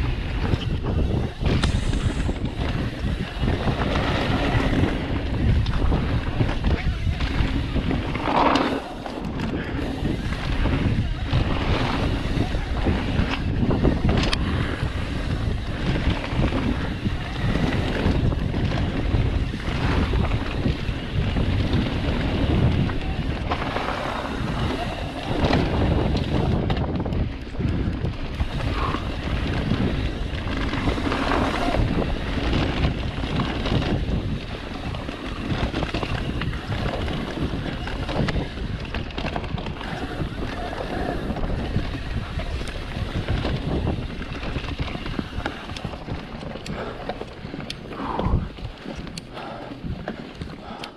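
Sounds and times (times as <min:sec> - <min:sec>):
bike knocks and rattles: 0:00.0 - 0:50.6
bike tyre rumble on dirt: 0:00.0 - 0:50.9
wind rushing over microphone: 0:00.0 - 0:50.9.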